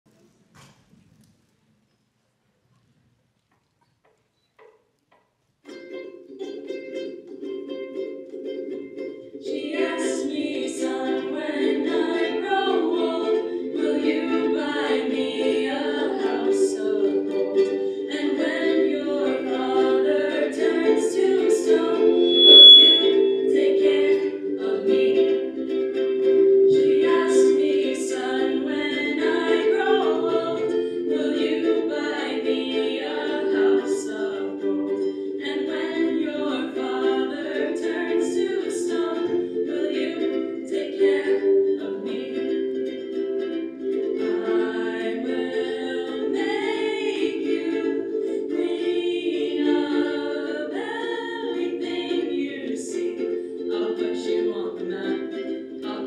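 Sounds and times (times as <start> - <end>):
ukuleles strumming: 4.6 - 56.0
women singing: 9.4 - 43.2, 44.0 - 56.0
brief high tone: 22.2 - 23.6.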